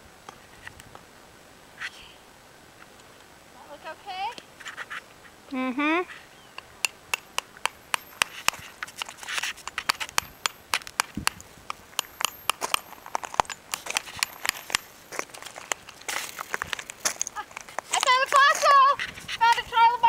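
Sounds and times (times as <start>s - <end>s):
rock hammer tapping on rock: 6.6s - 17.3s.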